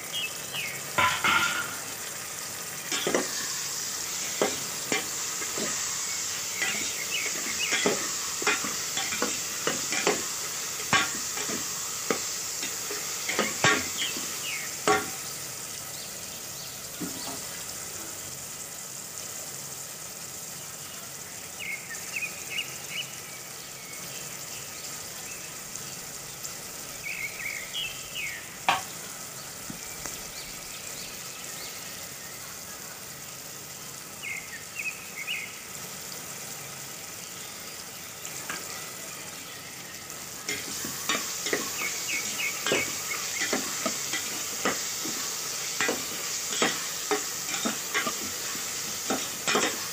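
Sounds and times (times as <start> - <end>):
onions sizzling in oil: 0.0 - 49.9
ladle scraping pot: 40.5 - 49.9.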